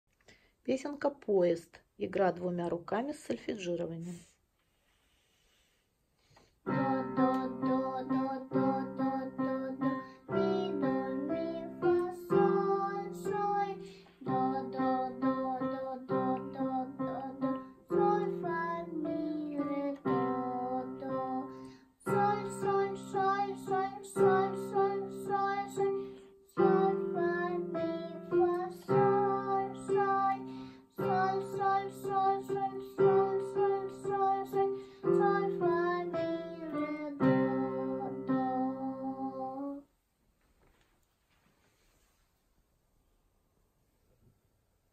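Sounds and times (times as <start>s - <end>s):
child singing note names: 6.7s - 39.9s.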